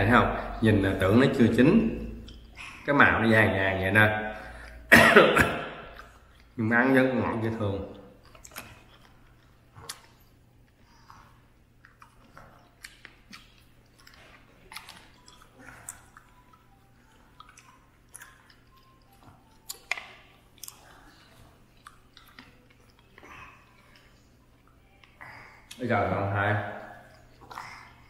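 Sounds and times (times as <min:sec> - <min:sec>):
person chewing: 0:01.9 - 0:02.9, 0:04.4 - 0:06.6, 0:07.9 - 0:25.8, 0:26.7 - 0:28.0.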